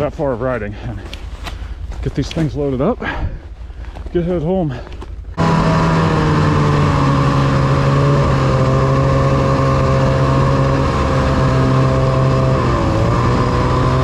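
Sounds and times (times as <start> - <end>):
snowmobile engine running: 4.1 - 14.0.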